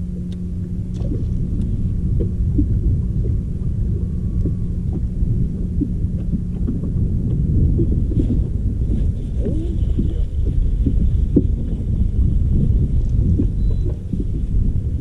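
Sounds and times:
steady low hum: 0:00.0 - 0:15.0
wind buffeting microphone: 0:00.0 - 0:15.0.

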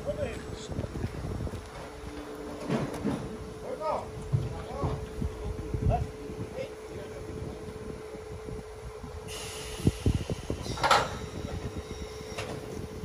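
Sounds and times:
steady whine: 0:00.0 - 0:13.0
steam hissing: 0:09.2 - 0:13.0.

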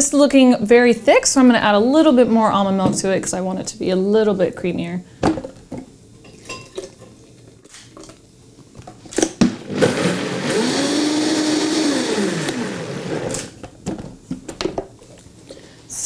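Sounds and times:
blender motor whining: 0:09.6 - 0:13.5.

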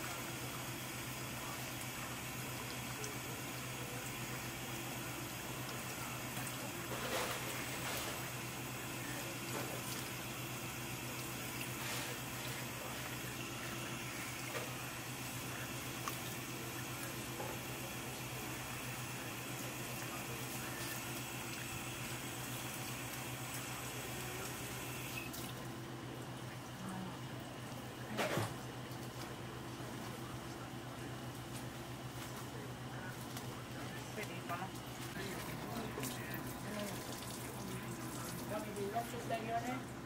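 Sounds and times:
water running from a hose: 0:00.0 - 0:25.6, 0:34.2 - 0:39.8
steady low hum: 0:00.0 - 0:40.0.

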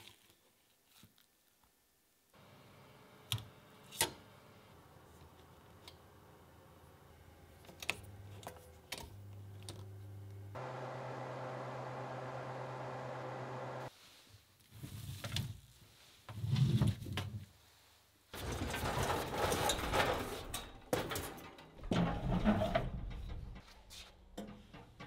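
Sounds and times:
oven fan humming: 0:02.4 - 0:13.9.

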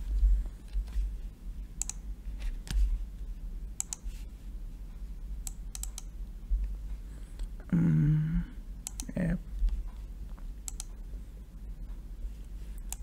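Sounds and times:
steady low hum: 0:00.0 - 0:13.0
mouse and keyboard clicks: 0:01.8 - 0:02.0, 0:03.8 - 0:04.1, 0:10.7 - 0:11.0, 0:12.8 - 0:13.0.

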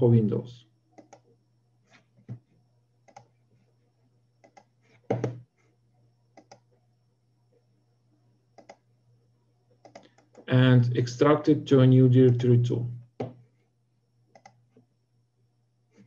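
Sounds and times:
faint low hum: 0:00.0 - 0:16.0
computer mouse clicking: 0:01.0 - 0:01.3, 0:03.0 - 0:03.4, 0:04.4 - 0:05.4, 0:06.3 - 0:06.7, 0:08.6 - 0:08.8, 0:09.8 - 0:10.5, 0:14.3 - 0:14.8.

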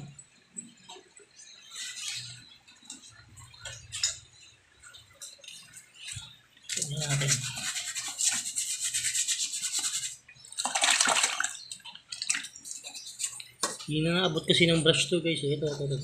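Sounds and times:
paintbrush bristles scrubbing: 0:06.8 - 0:10.7.

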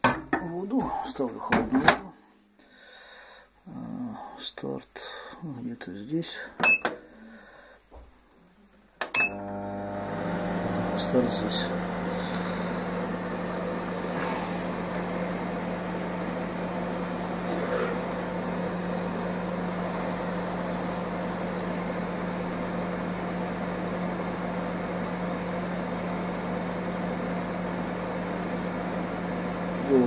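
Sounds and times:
microwave oven humming: 0:09.0 - 0:30.0.

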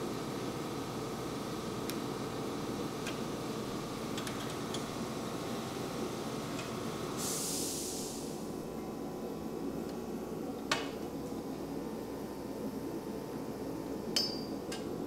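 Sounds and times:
shop background hum: 0:00.0 - 0:15.0
short hiss: 0:07.2 - 0:08.4.

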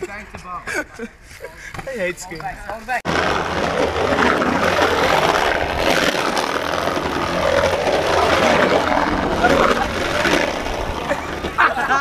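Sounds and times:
wheels rolling on concrete: 0:01.7 - 0:12.0
wind rushing over microphone: 0:03.1 - 0:11.8.

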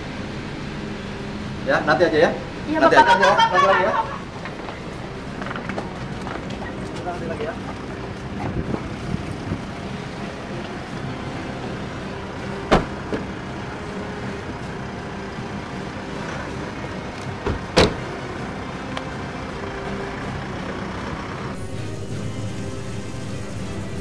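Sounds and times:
car engine humming: 0:00.0 - 0:24.0
car doors shutting: 0:12.5 - 0:13.4, 0:17.2 - 0:18.1.

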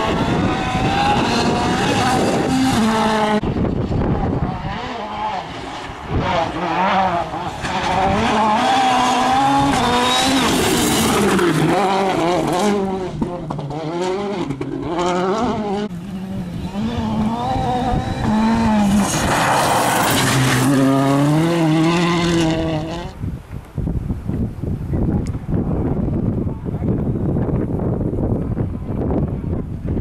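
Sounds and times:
rally car engine revving: 0:00.0 - 0:23.2
gravel crunching under tyres: 0:18.3 - 0:22.4.

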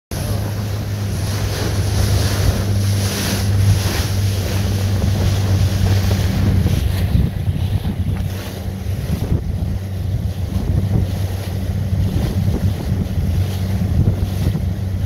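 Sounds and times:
boat engine humming: 0:00.1 - 0:15.0
water rushing past hull: 0:00.1 - 0:15.0
wind buffeting microphone: 0:00.1 - 0:15.0.

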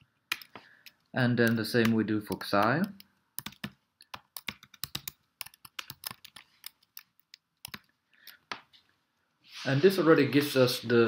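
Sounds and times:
computer keyboard typing: 0:00.3 - 0:08.4.

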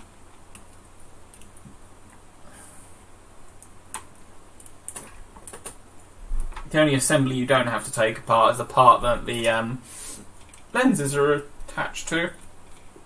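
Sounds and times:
faint clicks and taps of small parts: 0:00.3 - 0:02.2, 0:03.5 - 0:05.8.

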